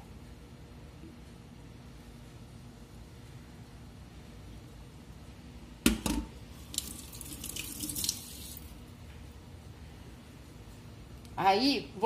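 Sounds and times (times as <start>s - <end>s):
dripping water: 6.6s - 8.8s.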